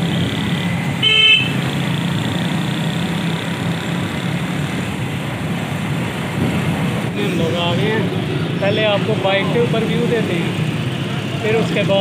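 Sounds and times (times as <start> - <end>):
motorcycle engine running: 0.0 - 12.0
street traffic noise: 0.0 - 12.0
vehicle horn toot: 1.0 - 1.6.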